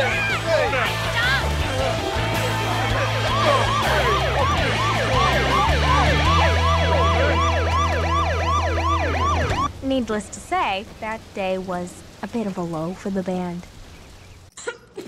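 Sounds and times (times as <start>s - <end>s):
police siren yelping: 0.0s - 9.7s.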